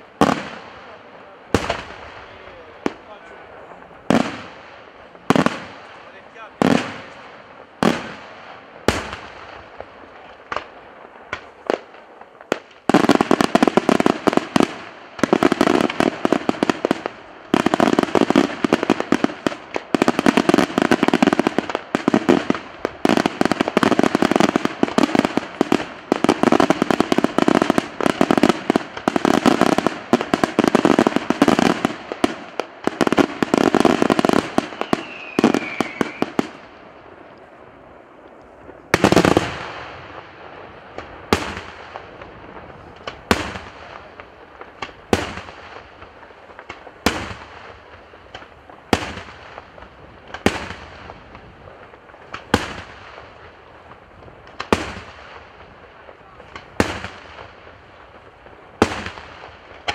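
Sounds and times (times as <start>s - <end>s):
fireworks bangs: 0.0s - 59.9s.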